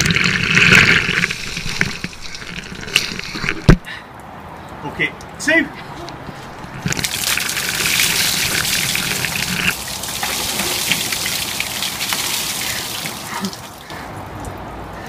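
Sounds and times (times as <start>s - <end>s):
ice water splashing: 0.0s - 3.7s, 6.4s - 14.0s.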